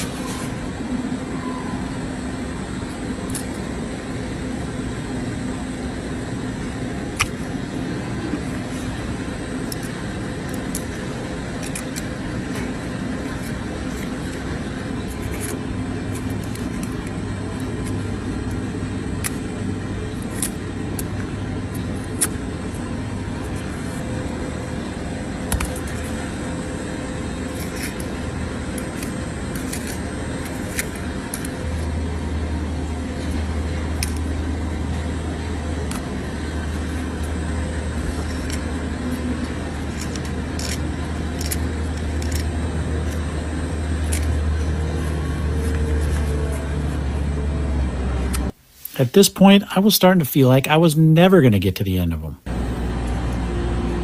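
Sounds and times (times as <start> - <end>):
low machine rumble and hum: 0.0 - 51.6, 52.3 - 54.0
hoof knife clicks and scrapes: 9.6 - 19.4, 20.1 - 22.4, 27.4 - 31.9, 36.7 - 43.3.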